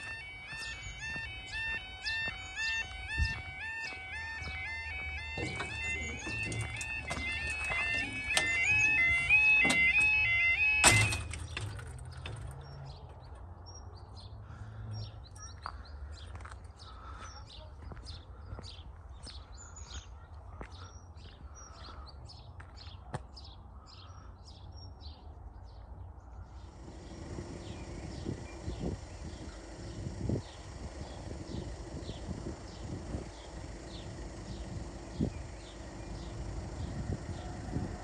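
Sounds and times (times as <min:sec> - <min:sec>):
small birds chirping: 0:00.0 - 0:09.8, 0:11.4 - 0:38.0
level crossing yodel alarm: 0:00.0 - 0:11.7, 0:26.7 - 0:38.0
low rumble of approaching train: 0:26.3 - 0:38.0.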